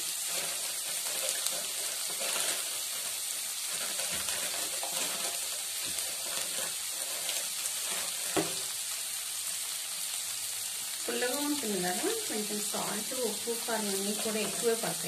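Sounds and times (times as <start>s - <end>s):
faint oil crackles: 0.0s - 15.0s
vegetables sizzling in hot oil: 0.0s - 15.0s.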